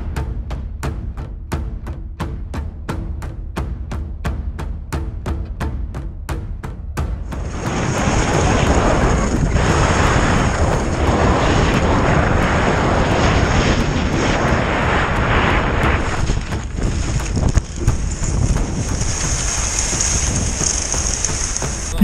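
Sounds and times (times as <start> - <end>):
skis scraping on snow: 7.4 - 21.9
wind buffeting microphone: 7.4 - 21.9.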